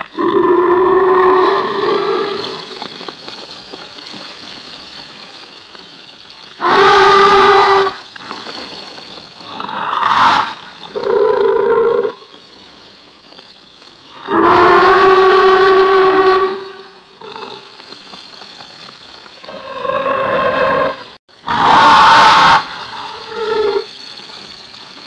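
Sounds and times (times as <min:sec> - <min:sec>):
alligator roaring: 0:00.0 - 0:02.8, 0:06.6 - 0:08.0, 0:09.5 - 0:12.2, 0:14.2 - 0:17.7, 0:19.5 - 0:23.8.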